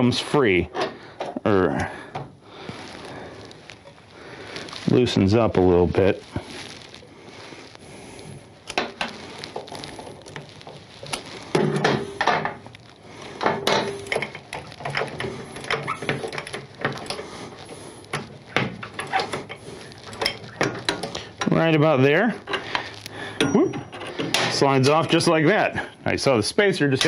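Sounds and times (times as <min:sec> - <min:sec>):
metal bolt clinking and scraping: 0:13.4 - 0:17.2, 0:18.1 - 0:21.6, 0:23.4 - 0:24.9.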